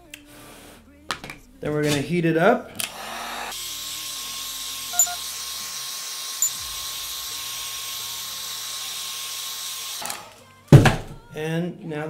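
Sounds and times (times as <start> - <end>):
heat gun blowing: 2.8 - 10.4
sharp blips: 5.0 - 5.2.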